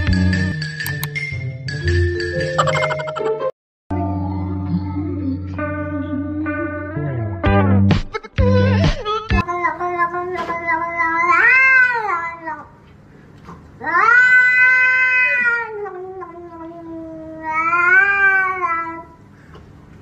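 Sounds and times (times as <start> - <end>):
cat yowling: 13.8 - 16.2.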